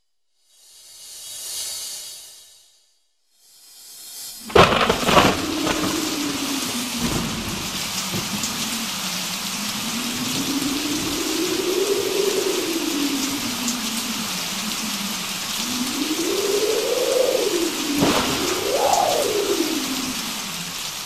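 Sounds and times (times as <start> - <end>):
steady rain: 4.3 - 21.0.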